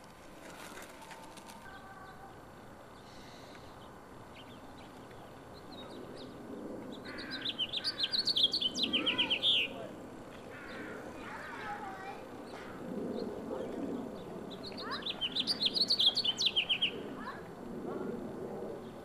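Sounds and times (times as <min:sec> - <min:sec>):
house finch singing: 0:07.1 - 0:09.8, 0:14.6 - 0:17.0.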